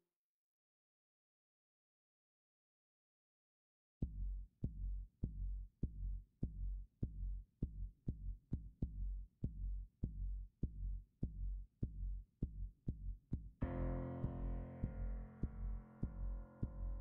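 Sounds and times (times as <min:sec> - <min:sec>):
deep kick drum beat: 0:04.0 - 0:17.0.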